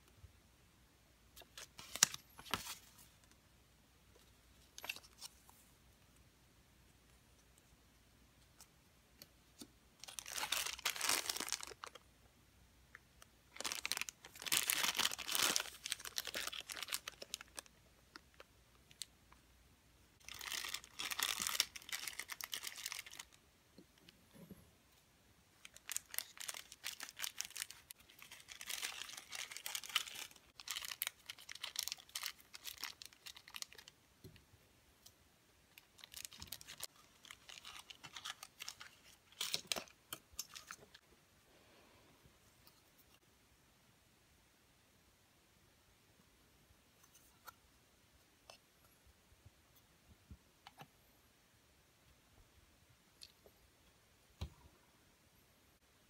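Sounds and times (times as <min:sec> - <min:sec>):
plastic bags crinkling: 0:10.0 - 0:12.0, 0:13.5 - 0:17.7, 0:20.2 - 0:23.4, 0:25.6 - 0:33.9, 0:35.8 - 0:40.8.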